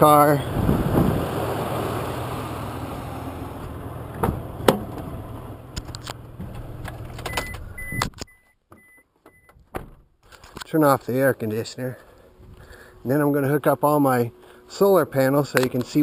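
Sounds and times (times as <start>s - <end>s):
car engine idling: 0.0s - 7.8s.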